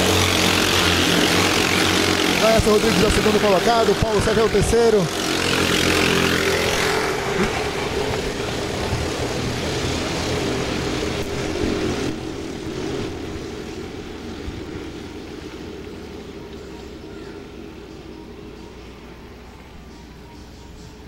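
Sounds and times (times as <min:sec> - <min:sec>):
kart engines at high revs: 0:00.0 - 0:15.8.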